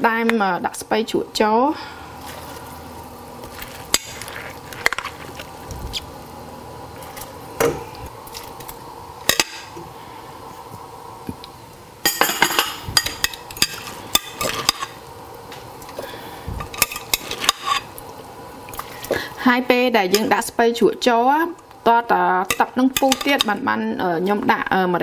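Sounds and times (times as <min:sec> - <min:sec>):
soup simmering: 0:01.8 - 0:19.4.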